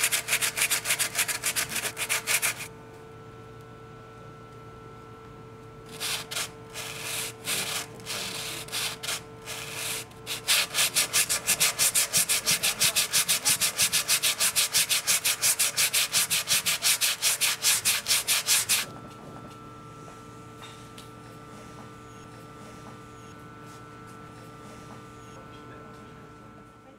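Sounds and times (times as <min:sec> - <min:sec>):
sandpaper rubbing on wood: 0:00.0 - 0:02.7, 0:05.9 - 0:18.9.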